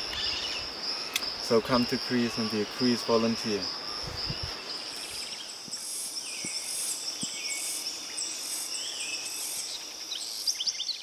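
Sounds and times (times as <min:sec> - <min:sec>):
bird calls: 0:00.0 - 0:01.3
high insect drone: 0:00.0 - 0:11.0
pulsing insect calls: 0:00.0 - 0:11.0.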